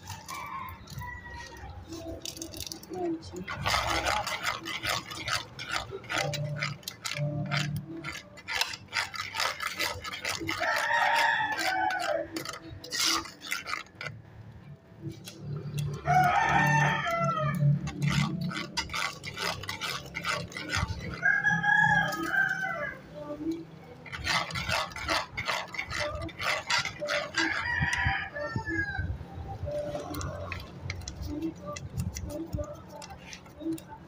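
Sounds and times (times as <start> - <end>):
rooster crowing: 0.0 - 1.8, 10.6 - 12.4, 16.0 - 17.8, 21.2 - 23.0, 27.4 - 29.1
metal spoon scraping a pot: 0.0 - 14.2, 15.1 - 28.8, 29.6 - 34.0.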